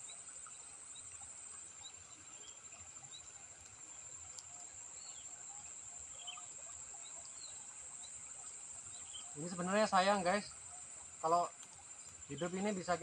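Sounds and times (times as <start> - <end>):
insects trilling: 0.0 - 13.0
faint click: 3.6 - 4.5, 11.5 - 12.2
bird chirps: 8.9 - 9.7.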